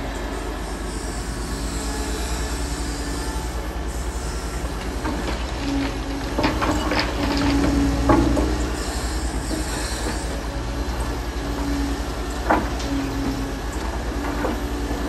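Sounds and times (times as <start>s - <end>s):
excavator diesel engine running: 0.0s - 15.0s
hydraulic whine: 0.0s - 15.0s.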